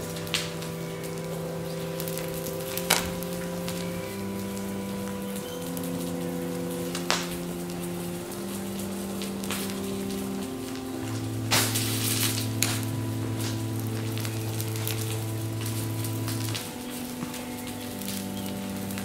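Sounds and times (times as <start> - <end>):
plastic toy crackling and sizzling: 0.0 - 19.0
slow background music: 0.0 - 19.0
sharp pops: 10.5 - 19.0.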